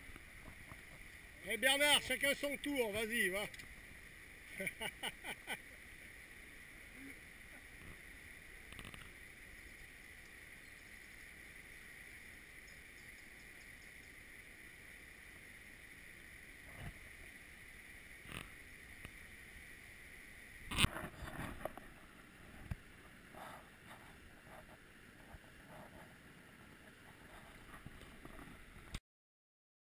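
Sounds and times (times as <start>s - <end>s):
mountain stream rushing: 0.0s - 23.3s.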